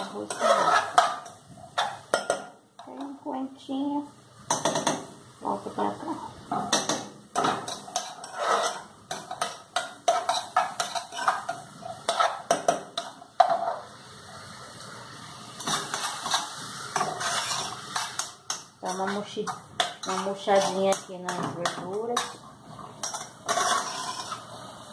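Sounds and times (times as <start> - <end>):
metal spoon stirring in pot: 0.0 - 3.2, 6.6 - 13.9, 15.6 - 24.5.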